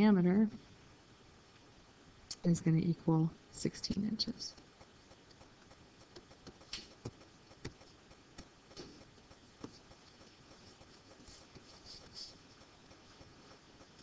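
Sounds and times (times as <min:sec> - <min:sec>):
low room hiss: 0:00.0 - 0:14.0
computer clicks and taps: 0:04.5 - 0:11.7.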